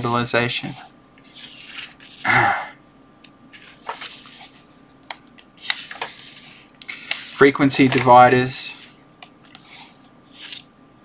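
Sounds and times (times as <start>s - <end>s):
book pages turning: 0.6s - 2.3s, 3.6s - 10.7s.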